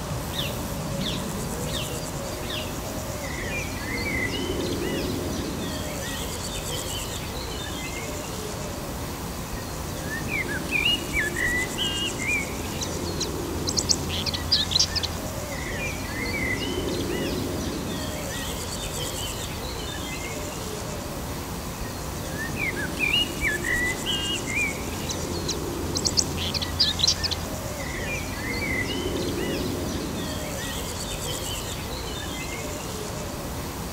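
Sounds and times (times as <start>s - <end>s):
background hiss: 0.0s - 33.9s
birds chirping and singing: 10.0s - 20.2s, 22.1s - 32.7s.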